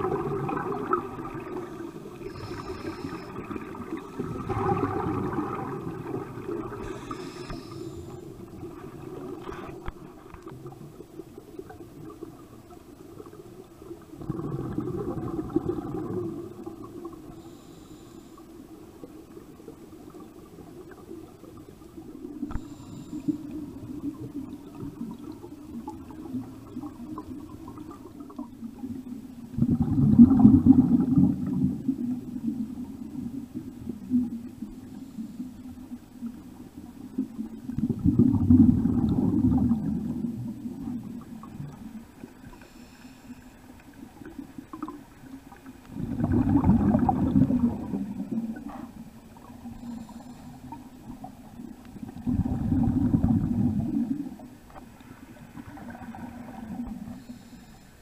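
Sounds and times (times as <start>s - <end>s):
underwater bubbles gurgling: 0.0s - 58.0s.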